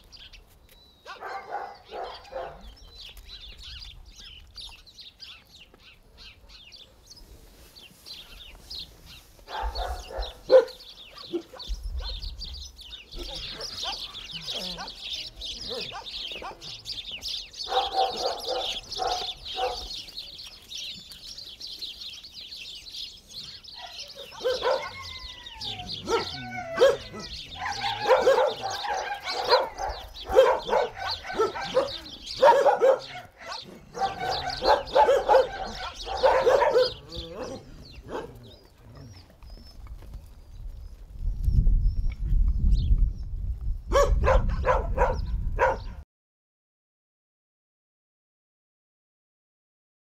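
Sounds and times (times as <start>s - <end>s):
small birds chirping: 0.0s - 46.0s
dogs barking: 1.0s - 2.8s, 9.4s - 12.4s, 13.1s - 20.1s, 23.7s - 39.3s, 43.9s - 46.0s.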